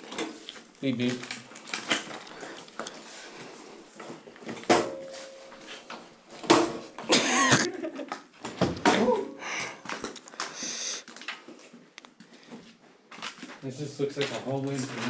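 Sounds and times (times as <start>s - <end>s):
person breathing hard: 9.3s - 11.1s.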